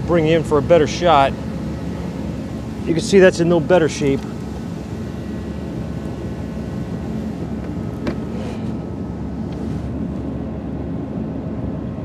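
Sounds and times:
vehicle running hum: 0:00.0 - 0:12.0
air rush: 0:00.6 - 0:10.3.

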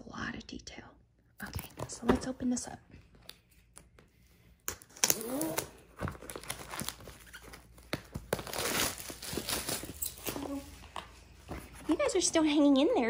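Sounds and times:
cardboard box rustling and crinkling: 0:05.9 - 0:10.8.

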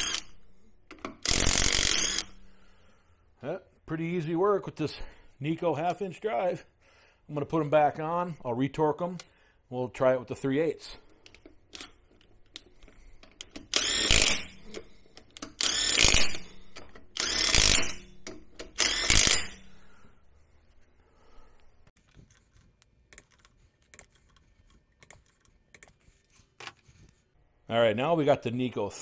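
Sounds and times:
impact wrench bursts: 0:00.0 - 0:00.3, 0:01.1 - 0:02.4, 0:13.4 - 0:19.9.

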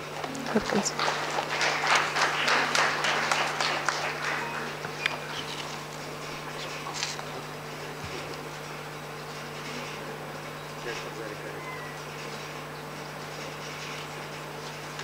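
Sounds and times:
steady low hum: 0:00.0 - 0:15.0
audience applauding: 0:00.1 - 0:05.6.

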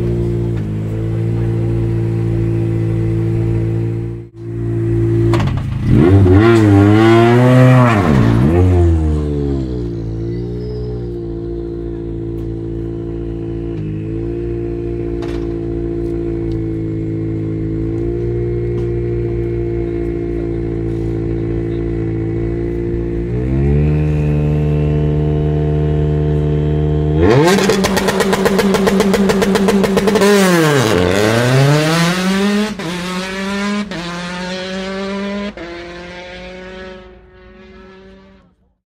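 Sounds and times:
rally car engine idling: 0:00.0 - 0:05.9, 0:09.1 - 0:30.6
car revving through gear changes: 0:05.1 - 0:38.5.

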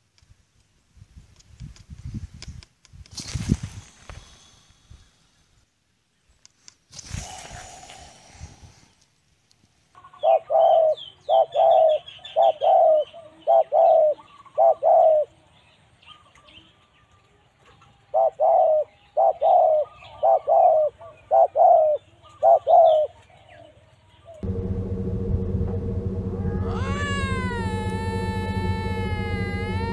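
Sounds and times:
pigeons cooing: 0:10.1 - 0:15.4, 0:18.1 - 0:23.7.

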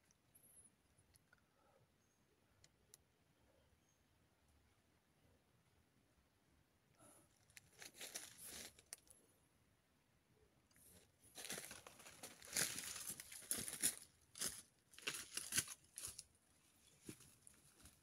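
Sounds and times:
footsteps through dry leaves: 0:07.8 - 0:08.8, 0:11.4 - 0:16.2.

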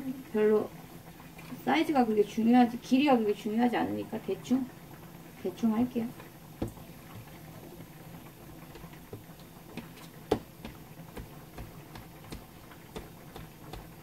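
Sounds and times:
knife tapping on cutting board: 0:09.8 - 0:14.0.

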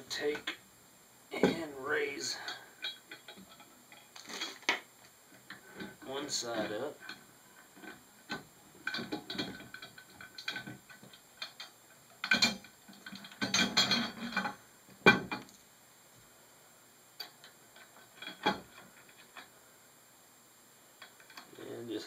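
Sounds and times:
metal parts clicking and knocking: 0:02.4 - 0:04.8, 0:07.8 - 0:15.6, 0:17.2 - 0:19.5, 0:21.0 - 0:21.5.

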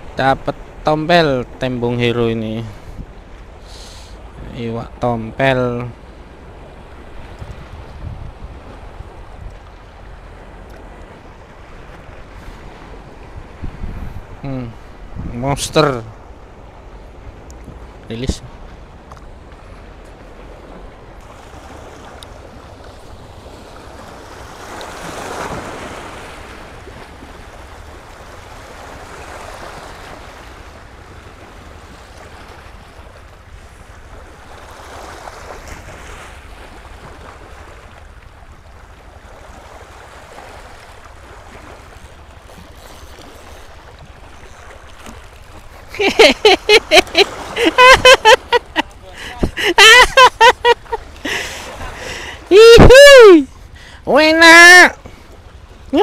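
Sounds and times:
wind rumble on microphone: 0:02.6 - 0:03.6, 0:04.2 - 0:46.1
waves washing against rocks: 0:39.1 - 0:52.7.

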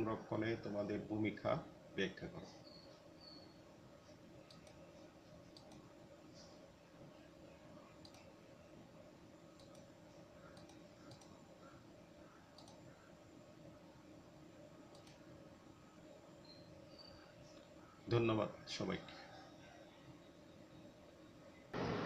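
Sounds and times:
low steady hum: 0:00.0 - 0:22.0
faint short clicks: 0:10.5 - 0:11.4, 0:12.5 - 0:12.8.

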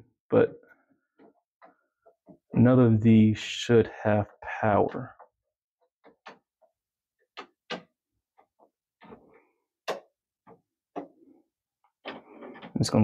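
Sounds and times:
plastic tester tapping breakers: 0:04.9 - 0:09.2, 0:09.8 - 0:11.2.

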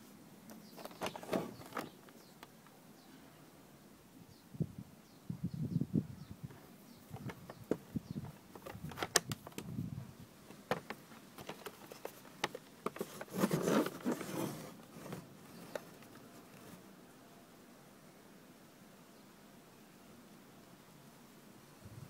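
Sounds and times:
rubbing and scraping: 0:10.5 - 0:16.8.

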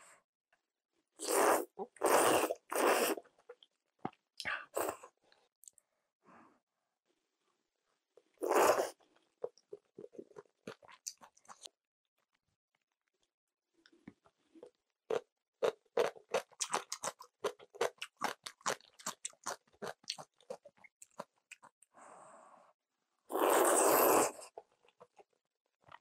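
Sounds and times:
slurping noodles: 0:01.2 - 0:03.3, 0:08.4 - 0:09.0, 0:23.3 - 0:24.6
crunchy chewing: 0:14.6 - 0:21.7.

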